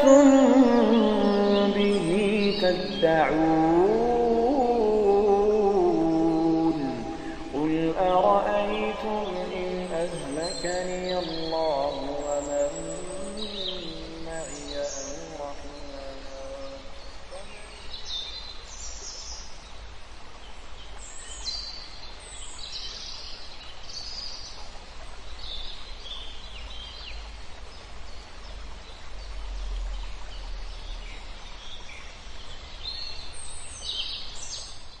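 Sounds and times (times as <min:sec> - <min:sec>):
birds chirping: 0:00.0 - 0:19.5.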